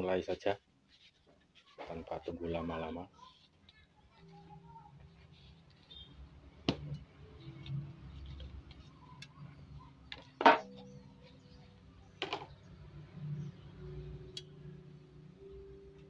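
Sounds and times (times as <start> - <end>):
soft handling rustle: 0.0 - 6.3.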